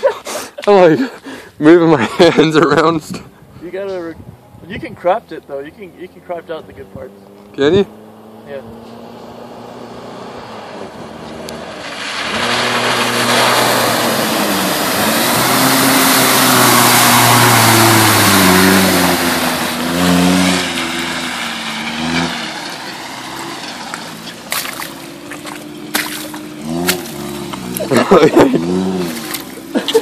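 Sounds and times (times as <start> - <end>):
truck engine revving: 5.0 - 30.0
mud and water spraying: 11.3 - 30.0
steps in wet mud: 23.9 - 28.0, 29.0 - 30.0.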